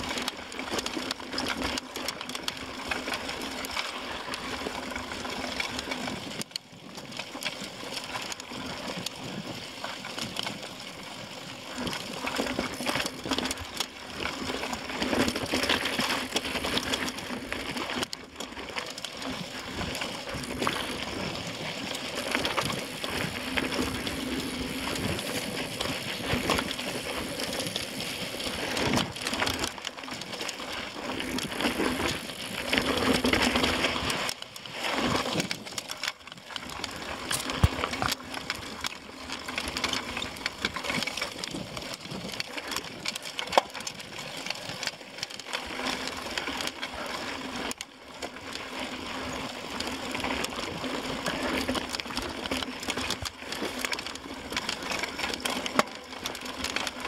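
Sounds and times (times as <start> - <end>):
bike clicking and knocking: 35.8 - 41.5
tyres crunching on gravel: 37.1 - 38.6.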